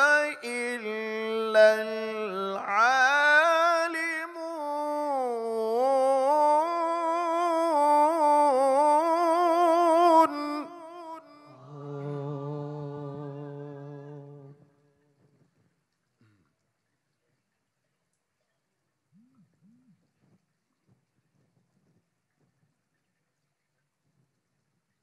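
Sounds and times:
man chanting through a microphone: 0:00.0 - 0:08.4.

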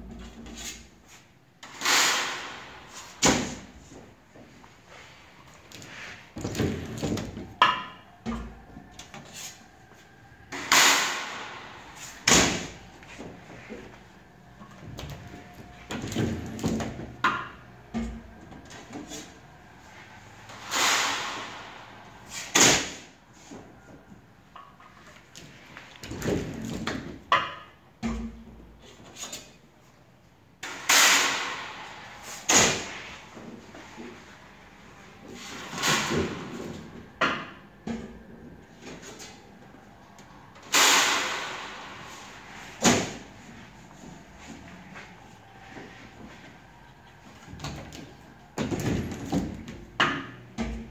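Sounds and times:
knocks of frame and metal plates: 0:14.6 - 0:29.6
loud rushing bursts: 0:19.7 - 0:23.1.

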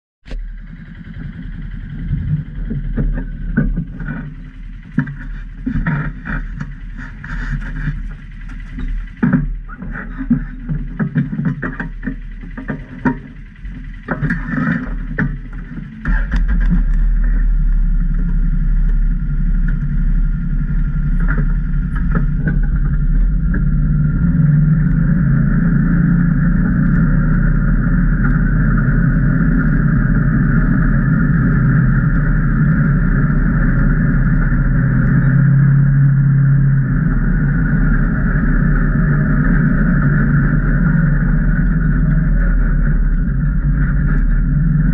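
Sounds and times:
engine running steadily: 0:00.2 - 0:44.9
knocks and rattles: 0:00.4 - 0:28.9.

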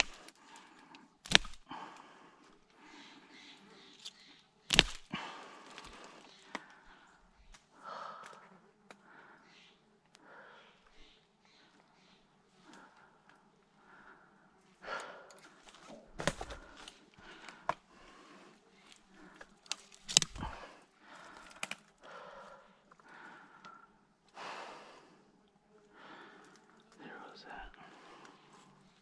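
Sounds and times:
rustling in dry leaves and twigs: 0:15.4 - 0:21.9.

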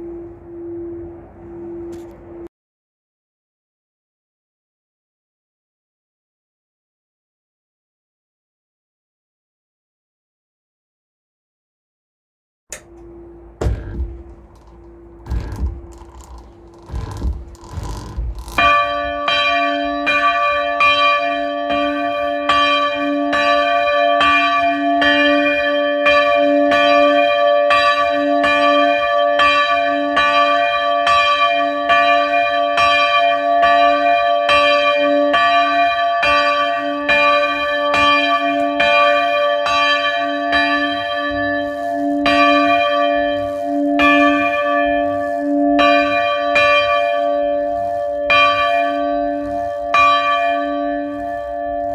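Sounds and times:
church bell ringing: 0:00.0 - 0:02.4, 0:12.8 - 0:17.4, 0:18.6 - 0:51.9
continuous ringing hum: 0:00.0 - 0:02.5, 0:12.7 - 0:27.2, 0:27.8 - 0:51.9
low knocking: 0:12.7 - 0:19.4.

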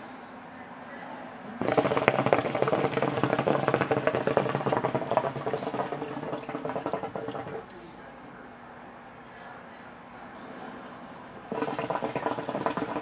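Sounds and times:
hookah water bubbling: 0:01.6 - 0:07.7, 0:11.4 - 0:13.0.

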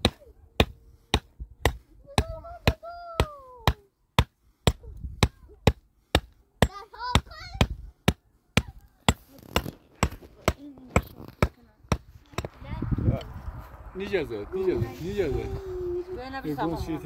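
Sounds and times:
child's high voice: 0:02.0 - 0:03.8, 0:06.7 - 0:07.8.

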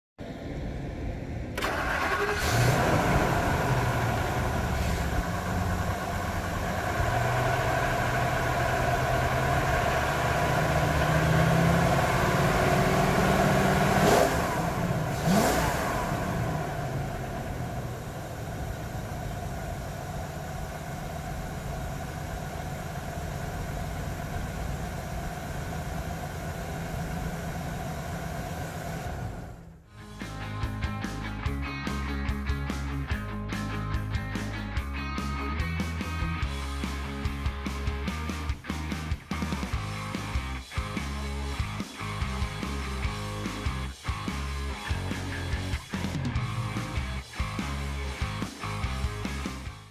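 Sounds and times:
engine starting and idling: 0:01.5 - 0:30.3, 0:39.3 - 0:49.8
engine revving: 0:01.5 - 0:30.4, 0:35.2 - 0:49.9.

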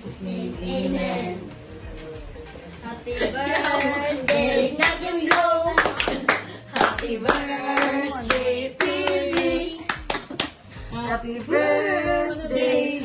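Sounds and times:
voices singing together: 0:00.0 - 0:13.0
group clapping along: 0:03.7 - 0:10.7.

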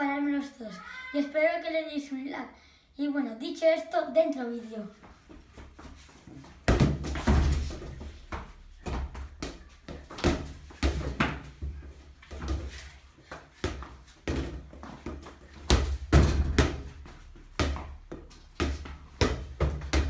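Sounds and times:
ball thudding on tiles and walls: 0:05.6 - 0:20.0.

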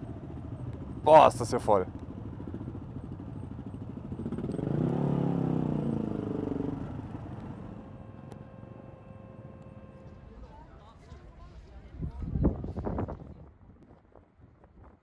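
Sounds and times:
motor scooter engine running: 0:00.0 - 0:10.2.

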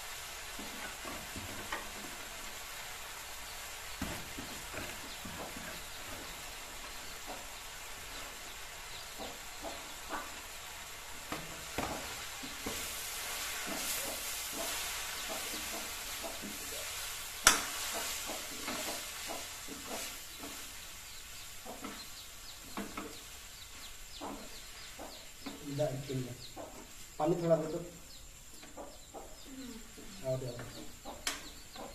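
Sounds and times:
greens sizzling in a wok: 0:00.0 - 0:31.9
spatula scraping a wok: 0:12.0 - 0:20.8.

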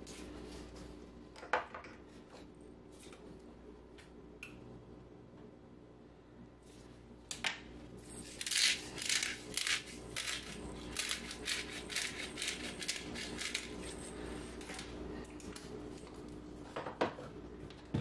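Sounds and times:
pepper grinder crunching: 0:08.2 - 0:14.0.

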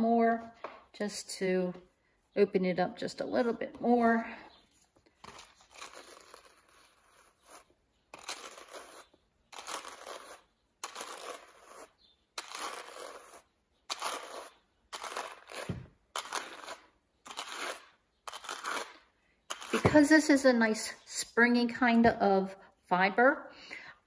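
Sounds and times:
wool cards rasping: 0:04.8 - 0:20.0.

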